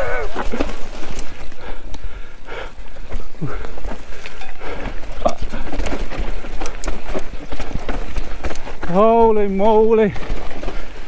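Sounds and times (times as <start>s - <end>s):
bike knocking and clattering: 2.7s - 11.0s.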